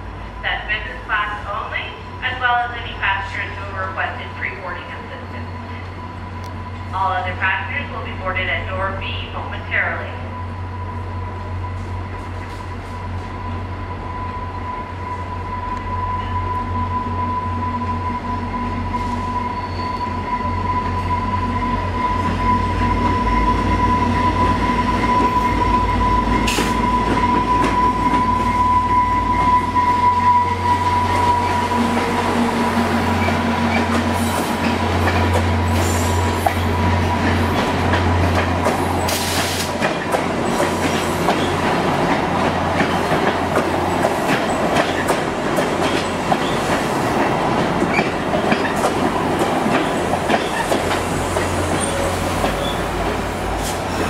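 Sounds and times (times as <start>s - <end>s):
diesel locomotive engine rumbling: 0.0s - 54.0s
train wheels squealing: 14.2s - 31.9s, 47.9s - 48.8s, 49.9s - 53.0s
train wheels clicking over rail joints: 33.2s - 54.0s.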